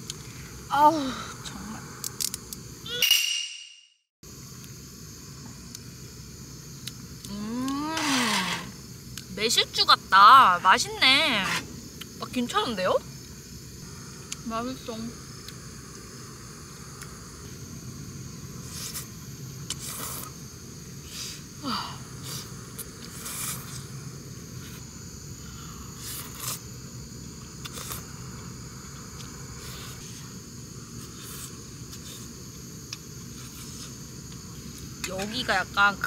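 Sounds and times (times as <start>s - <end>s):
insects chirring: 0.0s - 36.0s
slurping noodles: 26.0s - 26.6s.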